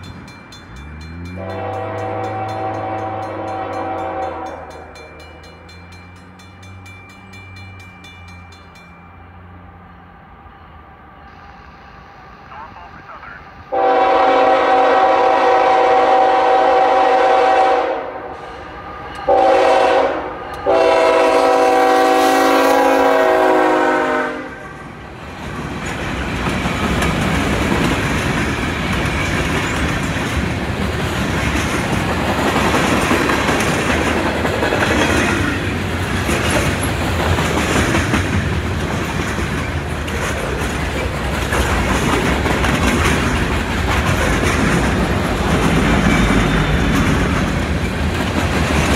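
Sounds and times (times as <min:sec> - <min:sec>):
train wheels rumbling on rails: 0:00.0 - 0:48.9
locomotive horn blasts: 0:01.3 - 0:04.8, 0:13.7 - 0:18.3, 0:19.3 - 0:24.8.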